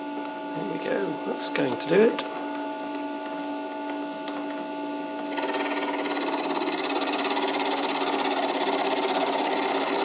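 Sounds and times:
small motor humming: 3.9s - 10.0s.

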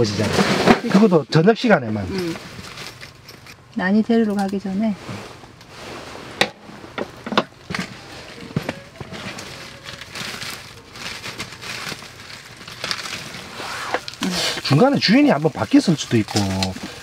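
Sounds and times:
plastic pouch crinkling: 7.9s - 17.0s.

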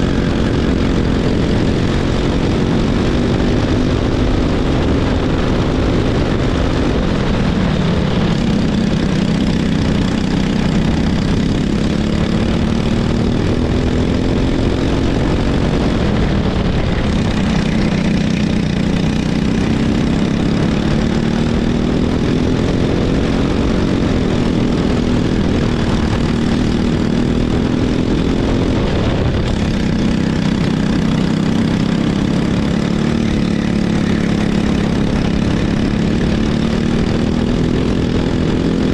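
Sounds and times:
kart engine running hard: 0.0s - 38.9s
steady rush of noise: 0.0s - 38.9s.

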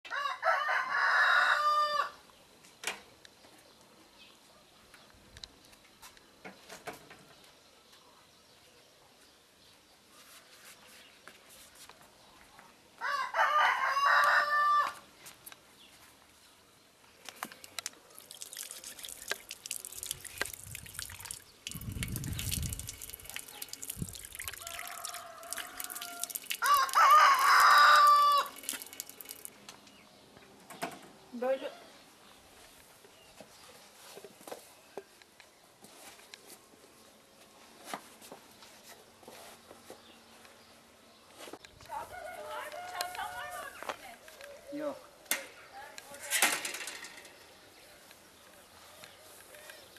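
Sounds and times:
rooster crowing: 0.1s - 2.2s, 13.0s - 15.0s, 24.5s - 28.6s, 41.9s - 43.8s
rustling and scuffing: 10.1s - 12.7s, 32.5s - 35.0s, 35.7s - 44.4s.

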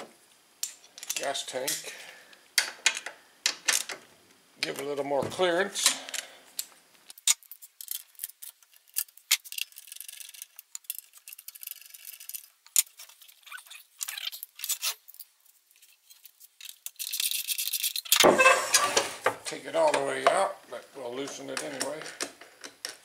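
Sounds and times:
tools and metal parts clinking: 0.6s - 1.9s
engine scraping on wooden workbench: 18.3s - 19.2s.

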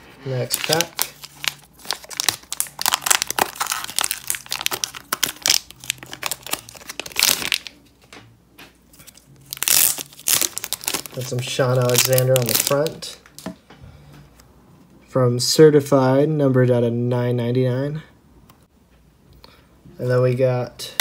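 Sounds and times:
foil wrapper crinkling: 0.3s - 7.8s, 9.0s - 13.2s.

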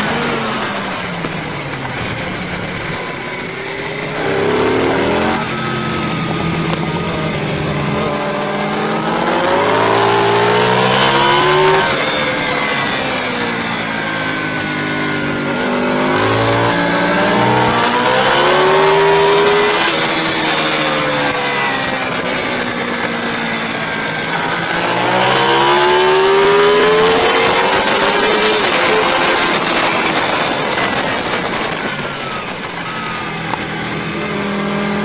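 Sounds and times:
racing motorcycle engine: 0.0s - 35.0s
steady rushing noise: 21.4s - 35.0s.

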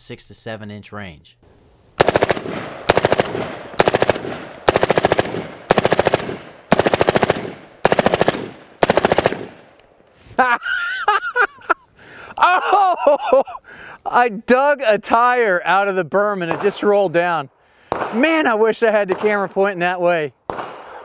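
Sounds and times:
suppressed rifle bursts: 2.0s - 10.1s
man laughing: 10.3s - 13.8s.

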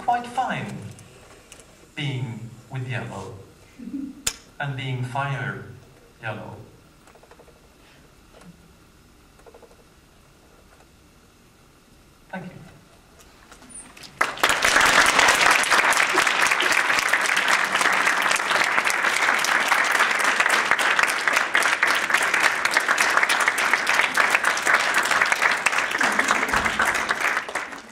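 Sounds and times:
audience applauding: 13.6s - 27.9s.

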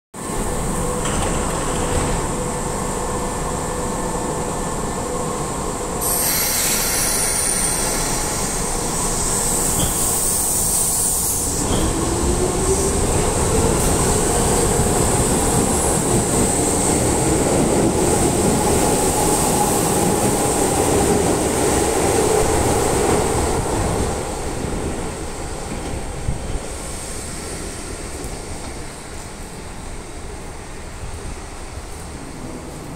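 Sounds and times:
train air hiss: 5.8s - 32.8s.

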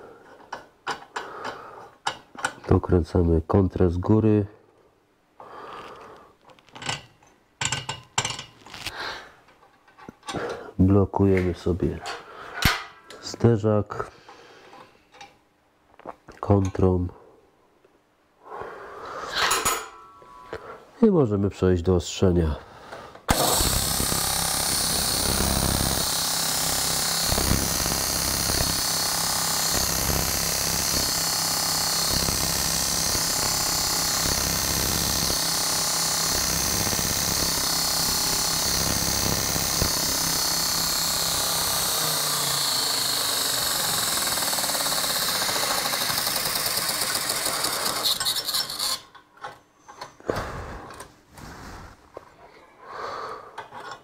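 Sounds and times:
belt grinder grinding drill bit: 23.3s - 49.2s.

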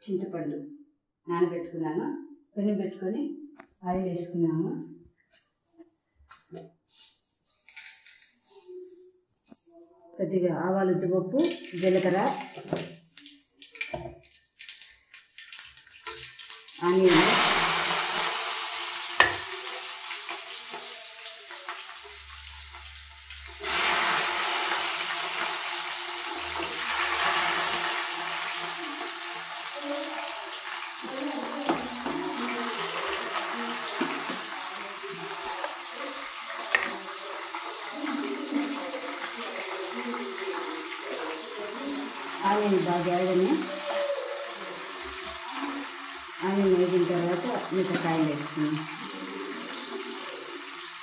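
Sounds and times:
onions sizzling in hot oil: 11.4s - 14.0s, 14.6s - 51.0s.

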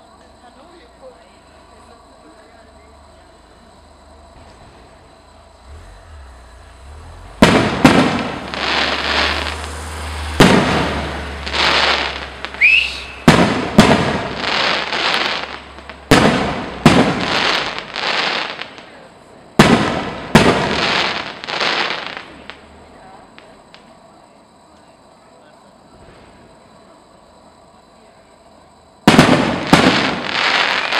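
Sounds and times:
firework bangs: 1.1s - 24.0s, 25.8s - 26.9s, 29.0s - 30.9s
firework crackle: 4.3s - 24.2s, 29.0s - 30.9s
firework rising whistle: 5.7s - 17.9s.

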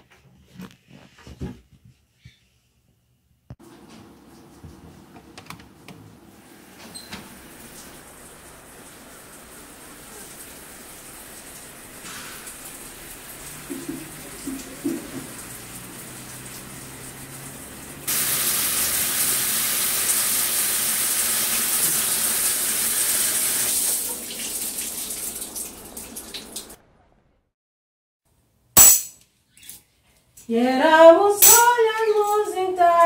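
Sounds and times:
shower spraying on tiled walls: 3.6s - 26.8s.

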